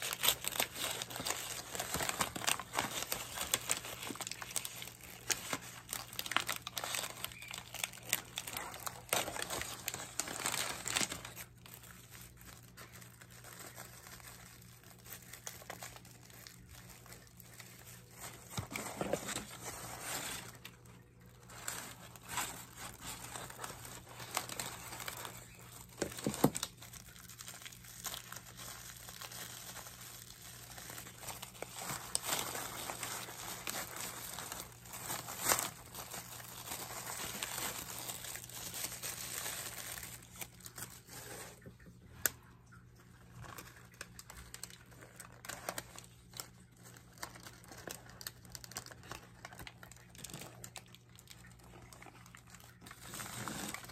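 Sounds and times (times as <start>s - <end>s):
plastic and paper crinkling: 0.0s - 53.9s.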